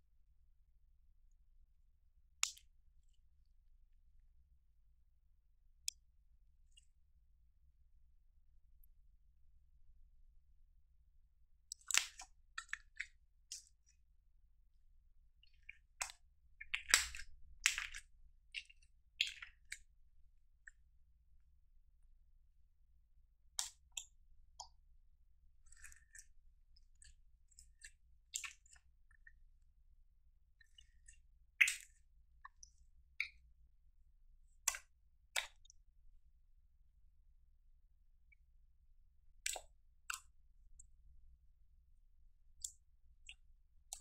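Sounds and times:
slime wet pops and crackles: 2.4 - 3.1, 11.7 - 13.9, 15.4 - 19.9, 23.6 - 24.8, 25.6 - 29.4, 30.6 - 33.4, 34.6 - 35.8, 39.4 - 40.4, 42.6 - 44.0.

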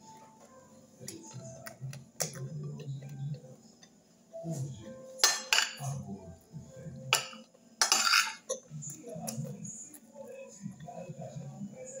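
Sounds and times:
metal spoon clinking on plate: 7.1 - 8.7.

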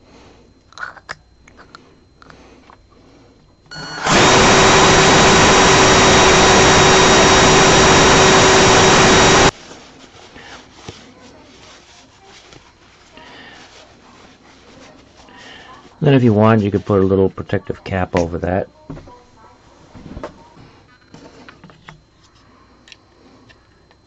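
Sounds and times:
cordless drill whining: 3.7 - 9.5.

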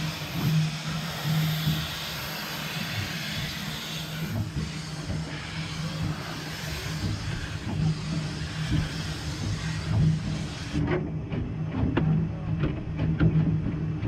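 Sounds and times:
steam locomotive hiss: 0.0 - 10.8.

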